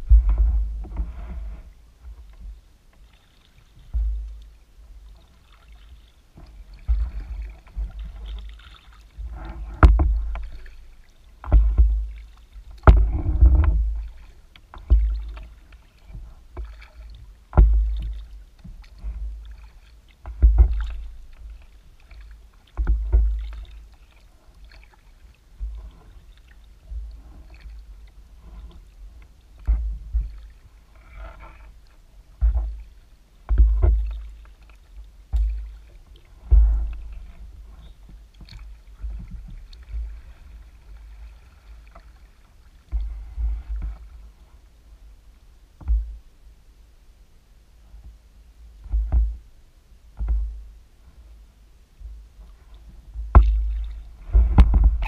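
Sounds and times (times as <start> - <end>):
paddle knocking on kayak: 0.0 - 1.5, 6.4 - 8.6, 9.2 - 23.8, 29.6 - 31.4, 32.3 - 44.2, 45.8 - 46.2, 48.8 - 49.4, 50.1 - 50.6, 52.9 - 55.0
paddle strokes splashing water: 0.0 - 46.5, 47.8 - 55.0.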